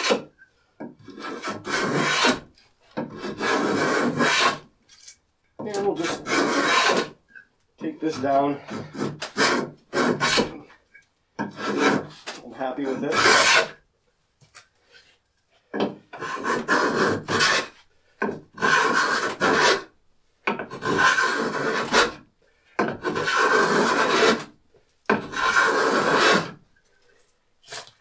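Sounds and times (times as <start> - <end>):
plane shaving wood: 1.1 - 2.4, 3.0 - 4.6, 5.6 - 7.1, 8.1 - 10.5, 11.4 - 13.8, 16.2 - 19.8, 20.7 - 22.2, 22.9 - 24.5, 25.2 - 26.6.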